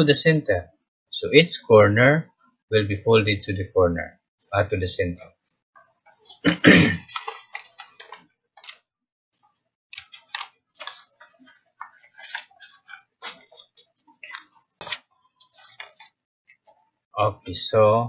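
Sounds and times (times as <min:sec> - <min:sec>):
paper folding and crinkling: 0:06.2 - 0:08.8, 0:09.4 - 0:16.2.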